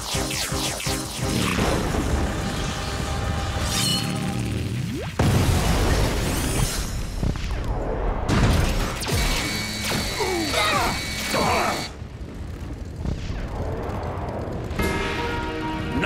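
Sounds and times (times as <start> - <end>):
zapping energy blasts: 0.0 - 15.4
robots whirring and clanking: 6.2 - 11.9
steady whine: 9.0 - 16.0.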